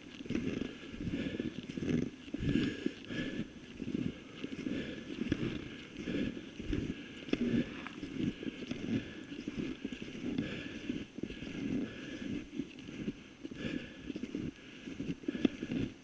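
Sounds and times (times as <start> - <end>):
skis scraping on snow: 0.0 - 16.0.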